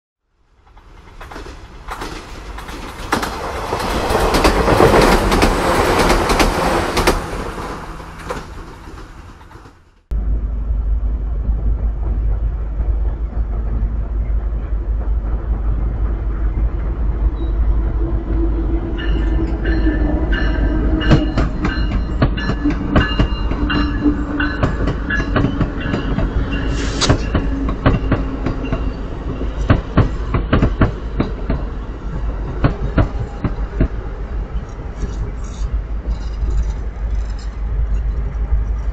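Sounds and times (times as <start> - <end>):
passenger train whine: 0.2 - 38.9
train wheels clicking on rail joints: 0.6 - 10.0, 11.5 - 38.9
low rumble: 3.5 - 38.9
loud rushing noise: 22.7 - 30.0.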